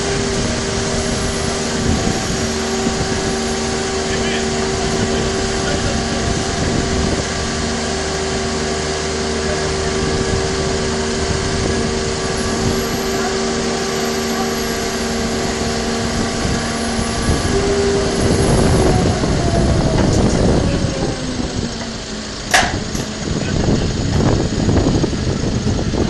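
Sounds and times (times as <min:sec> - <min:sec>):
boat engines idling: 0:00.0 - 0:26.0.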